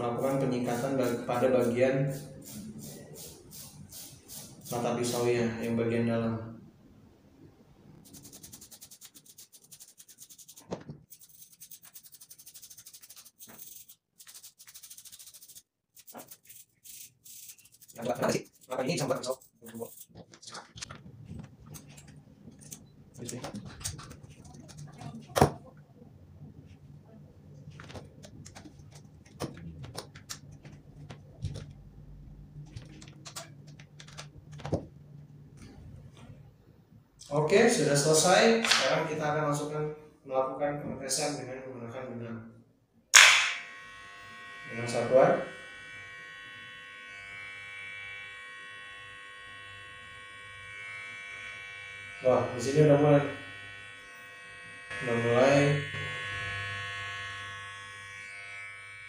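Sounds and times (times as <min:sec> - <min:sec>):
brush scrubbing metal blade: 0:08.1 - 0:20.1.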